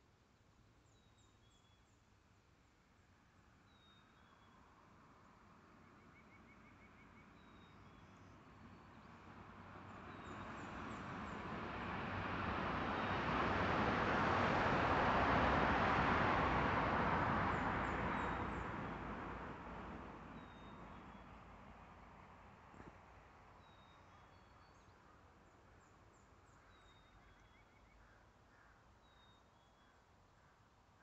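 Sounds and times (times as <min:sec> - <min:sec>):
road vehicle passing: 0:09.4 - 0:23.0.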